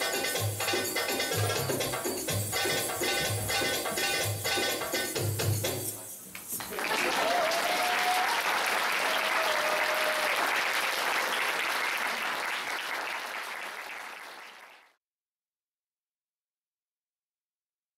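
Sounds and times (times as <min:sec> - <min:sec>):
audience clapping and cheering: 0:06.4 - 0:15.0.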